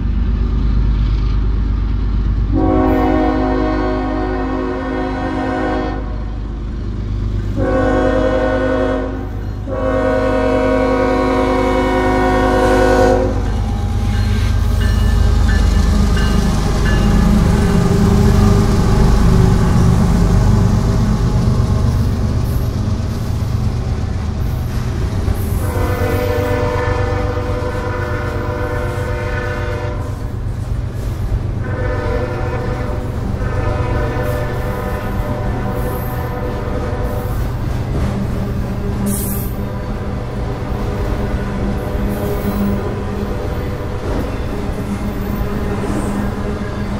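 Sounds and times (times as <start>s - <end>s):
locomotive engine rumble: 0.0s - 46.9s
rail cars clattering: 0.0s - 46.9s
locomotive air horn blasts: 2.5s - 6.3s, 7.5s - 14.8s, 25.6s - 30.3s, 31.6s - 37.4s.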